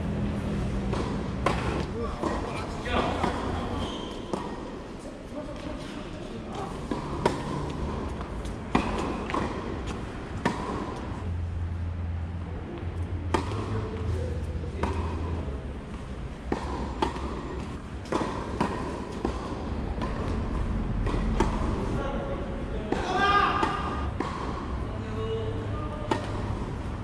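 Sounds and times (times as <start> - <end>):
tennis balls bouncing on court: 0.6 - 4.8, 6.5 - 11.4, 12.8 - 21.9, 22.9 - 24.9, 25.9 - 27.0
tennis balls hit with rackets: 0.6 - 4.8, 6.5 - 11.4, 12.8 - 22.0, 22.8 - 25.1, 25.7 - 27.0.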